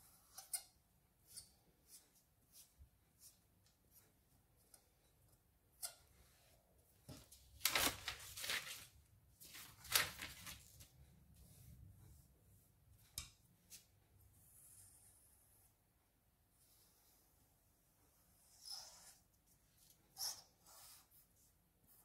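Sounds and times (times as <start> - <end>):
paper rustling on tabletop: 7.1 - 10.9.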